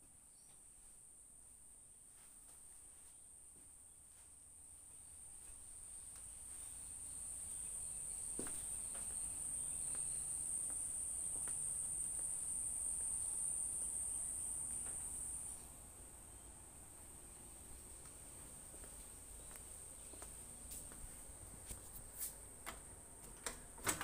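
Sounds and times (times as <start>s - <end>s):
insects trilling: 5.0s - 17.1s.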